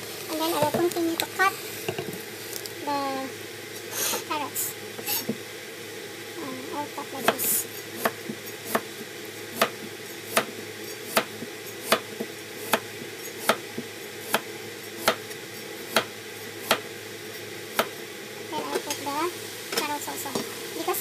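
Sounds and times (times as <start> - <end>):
background hum: 0.0 - 21.0
knife chopping on cutting board: 8.0 - 8.9, 9.6 - 12.8, 13.4 - 13.6, 14.2 - 15.2, 15.9 - 16.8.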